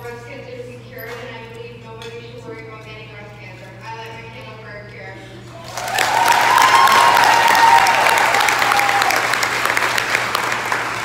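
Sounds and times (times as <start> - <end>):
audience applauding: 5.6 - 11.0.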